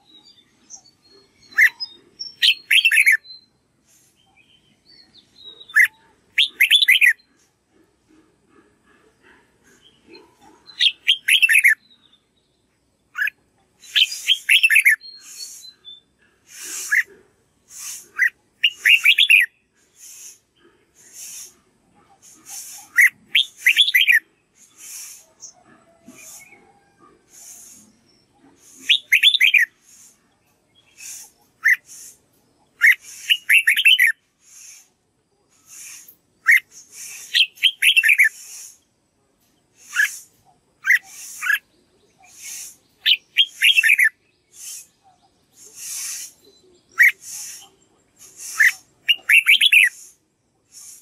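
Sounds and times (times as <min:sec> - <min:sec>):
bird whistling song: 0:00.0 - 0:03.6, 0:04.3 - 0:07.3, 0:10.7 - 0:12.2, 0:13.1 - 0:17.1, 0:17.7 - 0:20.4, 0:22.4 - 0:25.6, 0:27.4 - 0:30.2, 0:30.8 - 0:32.2, 0:32.8 - 0:34.9, 0:35.6 - 0:38.8, 0:39.8 - 0:51.0.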